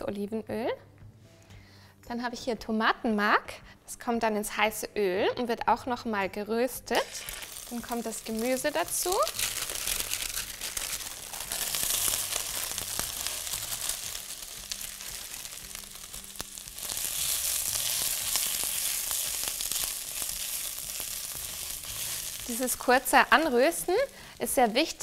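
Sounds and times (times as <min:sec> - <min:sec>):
vegetables sizzling in oil: 0:06.9 - 0:25.0.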